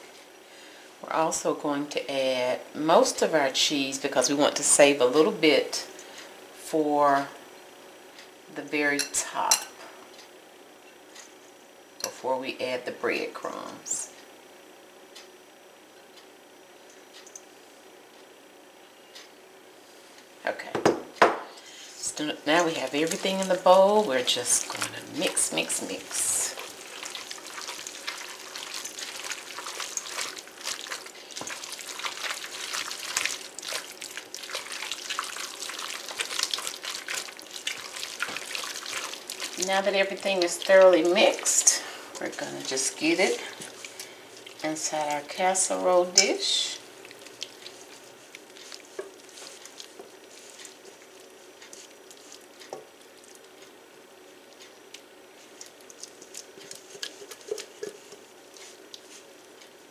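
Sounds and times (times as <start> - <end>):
wet squishing stirring in bowl: 21.7 - 59.9.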